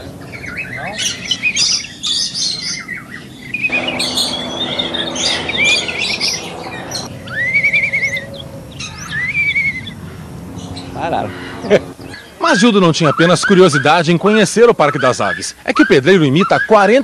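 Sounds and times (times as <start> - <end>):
birds chirping: 0.0 - 17.0
wavering whistled call: 0.3 - 10.0, 10.6 - 14.0.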